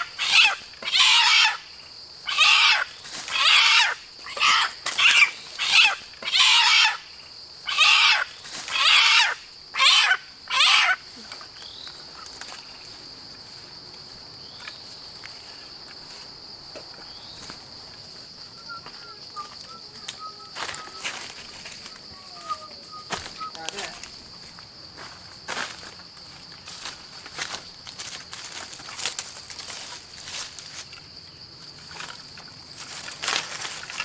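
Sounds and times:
chicken squawking: 0.0 - 1.6, 2.2 - 7.0, 7.6 - 11.0
faint bird chirps: 18.4 - 24.0.

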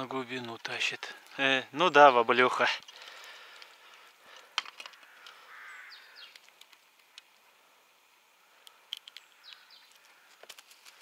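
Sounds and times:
crow cawing: 4.6 - 6.4, 9.4 - 10.5
high bird chirps: 5.4 - 6.4, 9.2 - 10.0.

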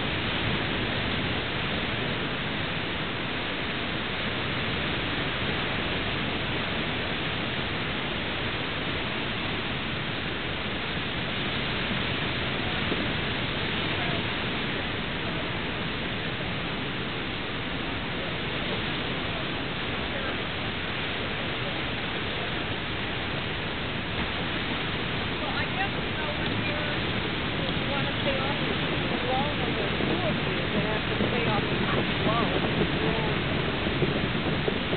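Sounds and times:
waves washing over rocks: 0.0 - 34.9.

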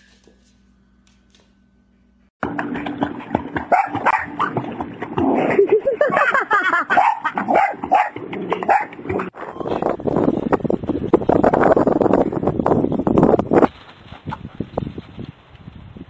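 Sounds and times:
water splashing: 2.4 - 9.4
dog barking and yipping: 3.6 - 4.6, 6.7 - 9.3.

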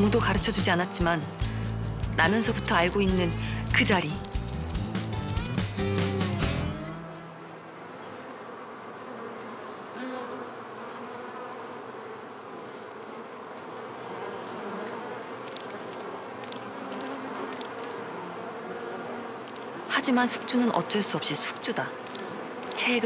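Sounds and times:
honeybees buzzing: 0.0 - 23.0
faint ticks: 15.4 - 18.0, 19.4 - 19.8, 21.5 - 22.9.

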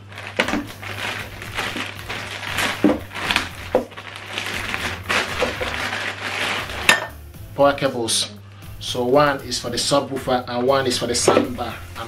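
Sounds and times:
plastic bag crinkling: 0.0 - 7.1.

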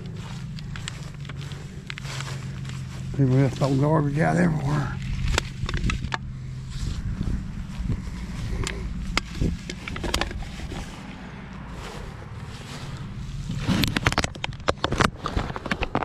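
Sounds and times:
steady low rumble: 0.0 - 16.0
plastic bottle and cans crinkling: 9.1 - 10.9, 13.6 - 16.0.

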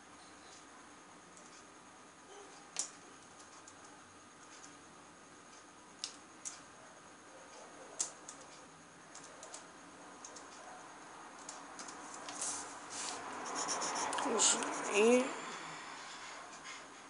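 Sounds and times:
hand brushing paper: 12.3 - 14.8
pencil ticking on paper: 13.5 - 15.0.

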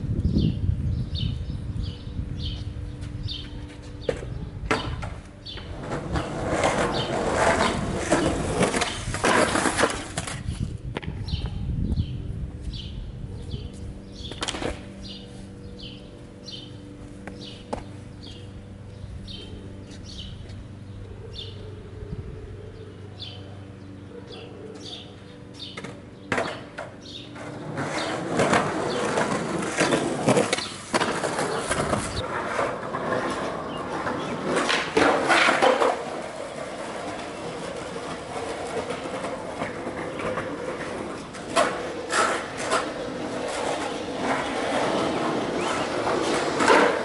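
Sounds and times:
skateboard wheels rolling on concrete: 0.0 - 22.2, 22.8 - 47.0
skateboard clacking on ground: 3.4 - 11.3, 14.2 - 15.2, 25.6 - 47.0.

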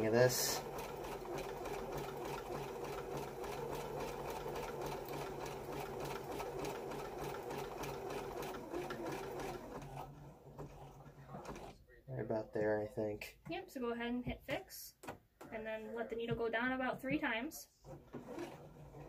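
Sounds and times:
sewing machine running: 0.0 - 11.7, 17.8 - 19.0.

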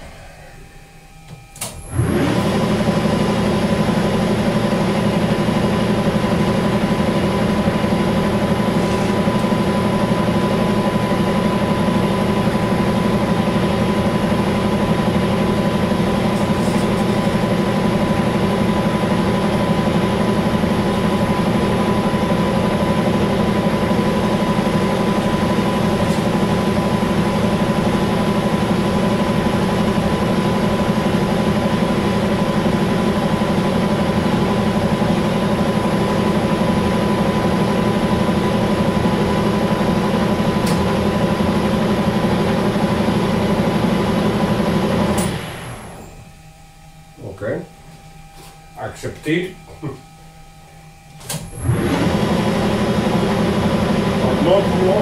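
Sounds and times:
steady high tone: 0.0 - 2.2, 45.2 - 51.8
metal lathe running: 1.7 - 46.1, 51.5 - 55.0.

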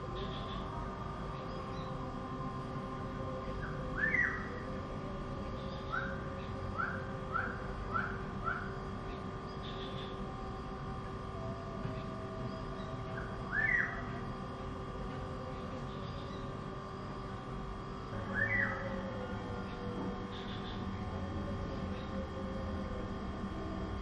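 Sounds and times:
steady background hum: 0.0 - 24.0
bird chirping: 3.6 - 4.6, 11.9 - 14.2, 19.7 - 20.8.

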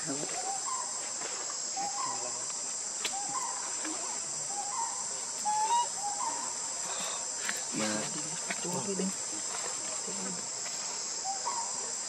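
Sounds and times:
bird calling: 0.0 - 1.0, 1.8 - 2.4, 3.0 - 9.0, 11.2 - 11.9
high-pitched insect chorus: 0.0 - 12.0.

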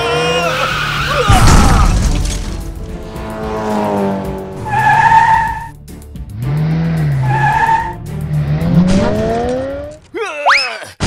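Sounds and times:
background music: 0.1 - 10.1
tyre screeches: 4.6 - 5.7
cartoon car engine revving: 6.4 - 10.0.

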